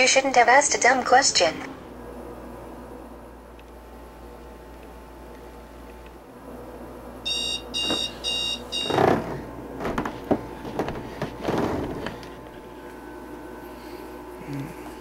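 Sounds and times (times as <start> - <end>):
digital alarm clock beeping: 7.3 - 8.9
bedding rustling: 7.6 - 12.9.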